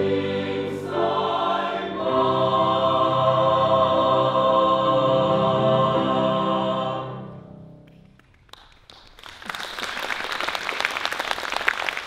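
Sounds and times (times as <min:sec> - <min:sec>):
choir holding a chord: 0:00.0 - 0:07.8
audience applauding: 0:07.8 - 0:12.0.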